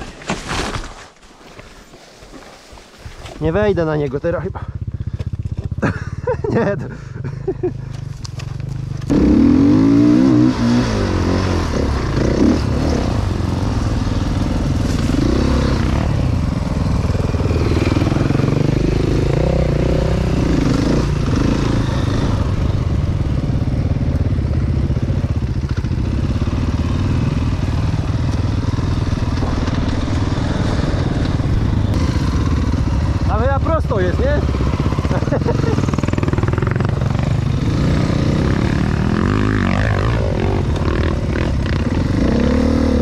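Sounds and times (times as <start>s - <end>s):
dirt bike engine revving: 9.0s - 43.0s.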